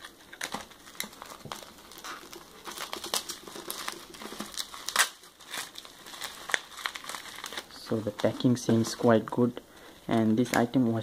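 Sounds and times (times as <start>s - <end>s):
scissors cutting plastic: 0.0s - 8.6s
plastic bag and bubble wrap crinkling: 0.0s - 11.0s.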